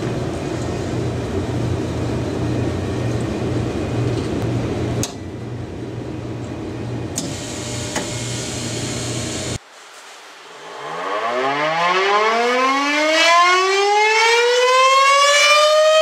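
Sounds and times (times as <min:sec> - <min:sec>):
equipment hum and hiss: 0:00.0 - 0:11.0.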